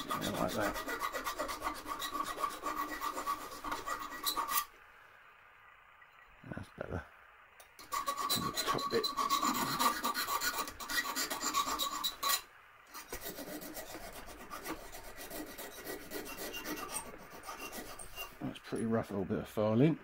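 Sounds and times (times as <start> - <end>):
file rasping on steel: 0.0 - 4.7, 7.8 - 18.4.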